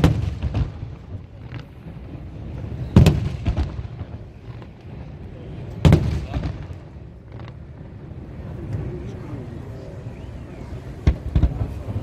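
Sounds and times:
faint firework pops: 0:11.0 - 0:12.0.

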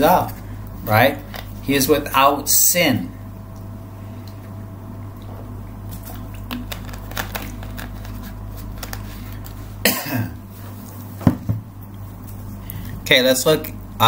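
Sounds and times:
steady low hum: 0:00.0 - 0:14.0
man coughing: 0:09.8 - 0:10.4.

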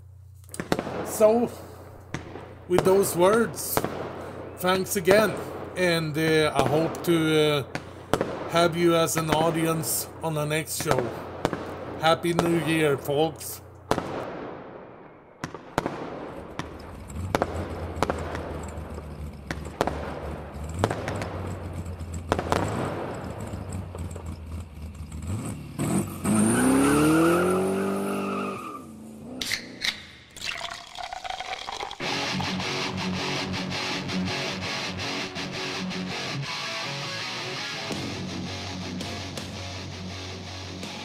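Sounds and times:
sharp bangs and cracks: 0:00.5 - 0:26.8, 0:32.0 - 0:41.0
guitar music: 0:32.0 - 0:41.0.

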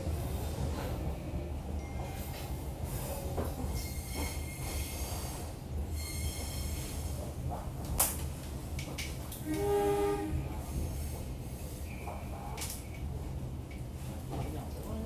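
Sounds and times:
train wheels rumbling on rails: 0:00.0 - 0:15.0
high wheel squeals: 0:06.0 - 0:07.0.

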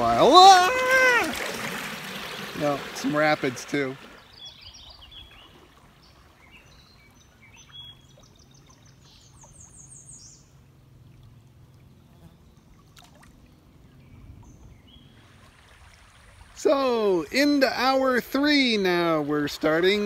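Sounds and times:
songbird singing: 0:00.0 - 0:11.2, 0:11.9 - 0:15.4
faint river water flowing: 0:00.0 - 0:20.0.

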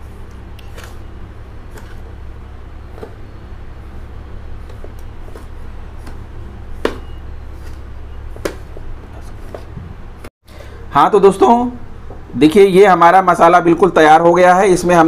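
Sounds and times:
steady low hum: 0:00.0 - 0:13.9.

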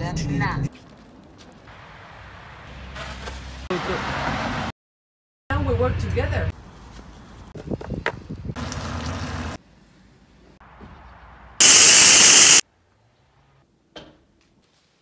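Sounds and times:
pressure wand spraying hiss: 0:11.6 - 0:12.6
short bursts of noise: 0:11.6 - 0:12.6.

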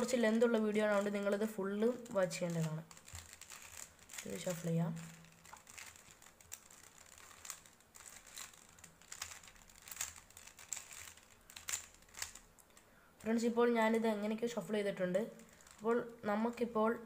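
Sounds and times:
puzzle cube layers clicking: 0:01.9 - 0:12.5.

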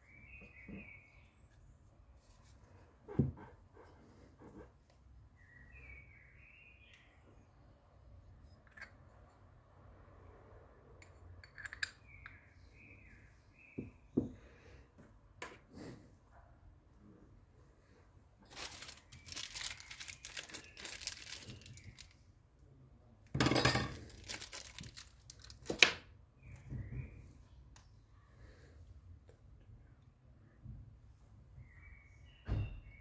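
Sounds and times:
parts clicking and knocking: 0:11.0 - 0:12.4
rustling scraping noise: 0:18.5 - 0:22.1.

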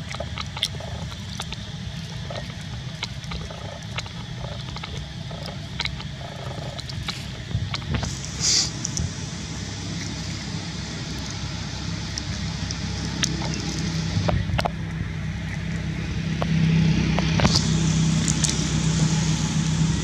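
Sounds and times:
low engine-like hum: 0:00.0 - 0:20.0.

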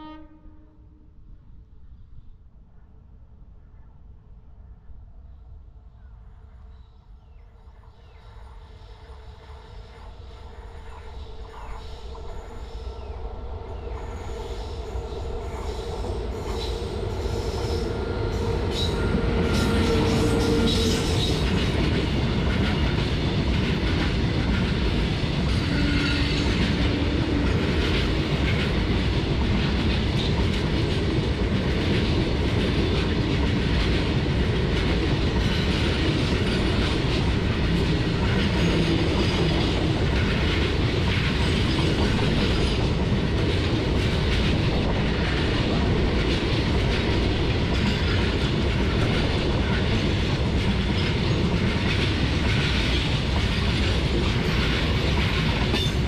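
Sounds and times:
freight train rumbling past: 0:07.6 - 0:56.0.

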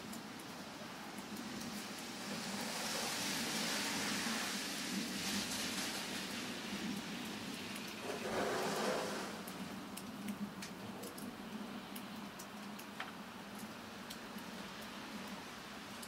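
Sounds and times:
steady hiss: 0:01.8 - 0:09.8
light ticks: 0:09.4 - 0:15.4.

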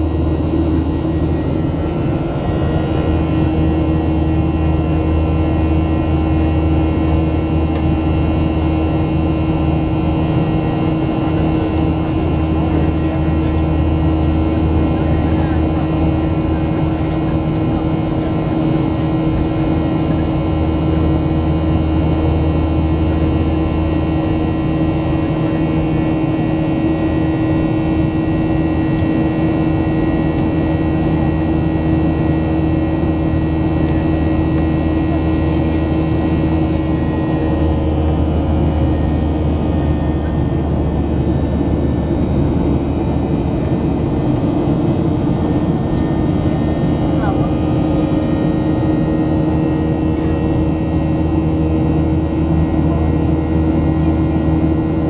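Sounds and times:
constant hum with held tones: 0:00.0 - 0:55.0
jet engines droning: 0:00.0 - 0:55.0.

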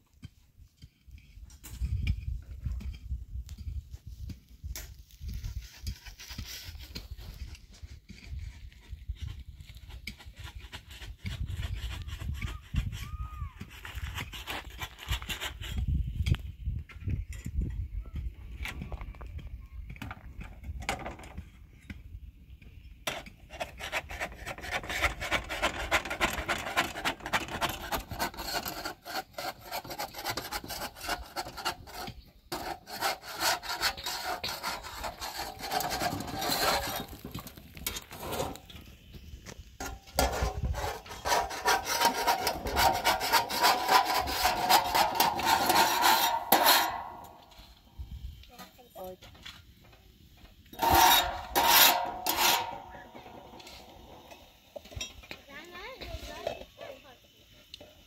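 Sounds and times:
scraping against wood: 0:23.1 - 0:38.7, 0:39.8 - 0:47.7, 0:50.8 - 0:54.4.

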